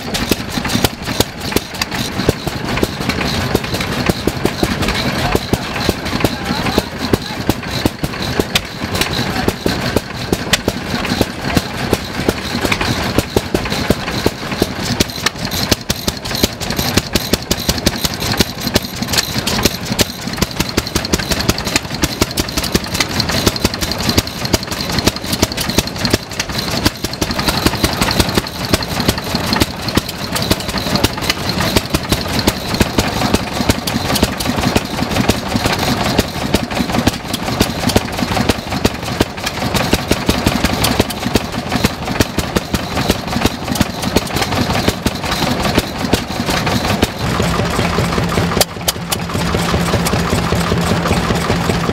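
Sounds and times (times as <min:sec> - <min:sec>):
stationary engines chattering: 0:00.0 - 0:51.9.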